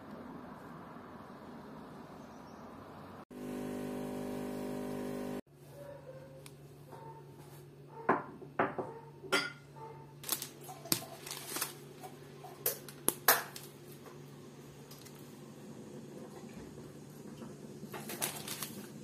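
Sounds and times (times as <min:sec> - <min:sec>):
foil wrapper crinkling: 0:10.2 - 0:12.2, 0:18.0 - 0:19.0.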